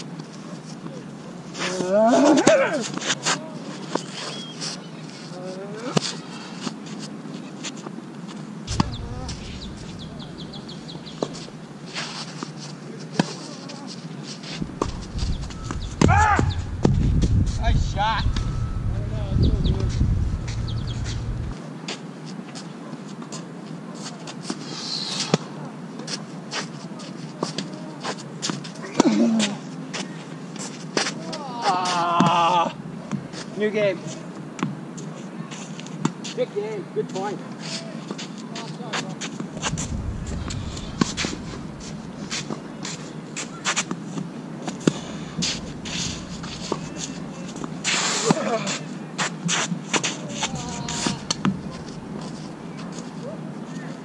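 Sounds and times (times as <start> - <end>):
wind rumble on microphone: 8.7 - 11.7, 14.6 - 21.6, 39.4 - 43.6, 45.0 - 47.9, 50.5 - 52.6.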